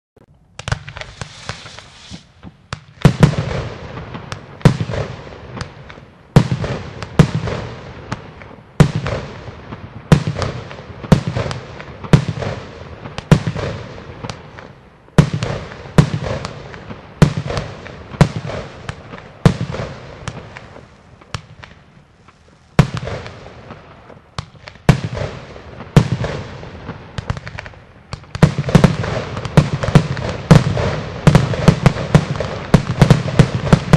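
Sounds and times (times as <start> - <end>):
fireworks pops and crackle: 0.2 - 33.9
fireworks loud bangs: 0.6 - 33.9.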